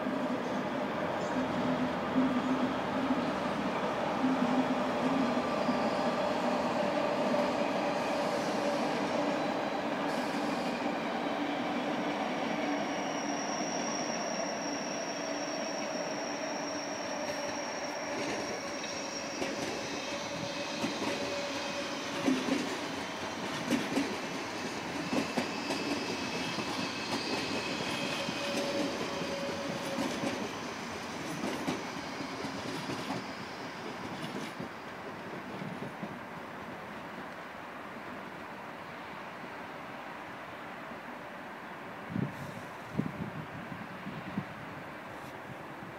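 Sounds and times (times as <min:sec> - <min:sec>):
thin steady squeal: 0:02.2 - 0:22.4, 0:24.9 - 0:35.0
train wheels clicking over rail joints: 0:17.3 - 0:36.2.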